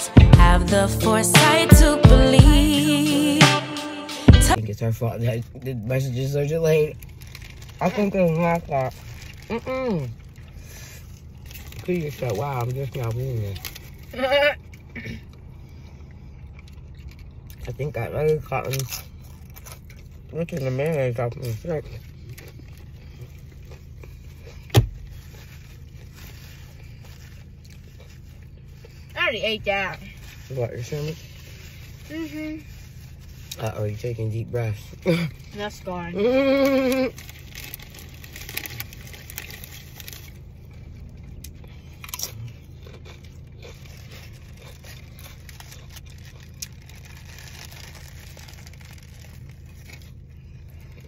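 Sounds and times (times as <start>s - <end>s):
low hum inside car: 0.0s - 51.0s
chewing: 6.4s - 29.2s, 36.3s - 51.0s
paper wrapper rustling: 6.9s - 9.6s, 36.7s - 41.2s, 43.8s - 51.0s
loud crunch: 36.6s - 51.0s.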